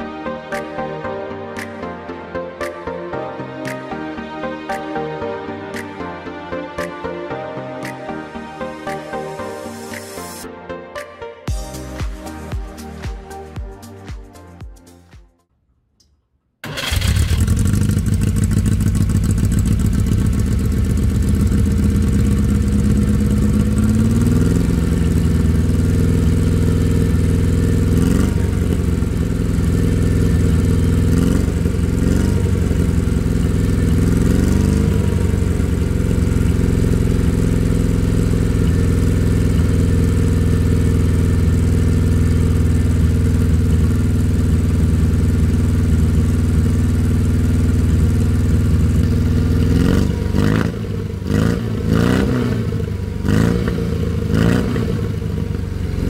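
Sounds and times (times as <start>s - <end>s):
car engine idling and revving: 16.6s - 56.0s.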